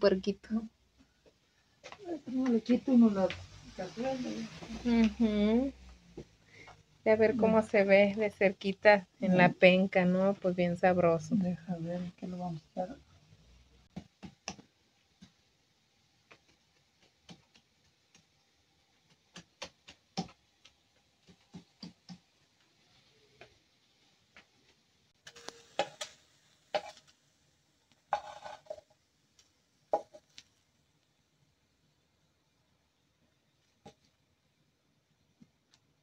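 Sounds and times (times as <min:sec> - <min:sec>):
knife scraping: 0:26.7 - 0:27.0.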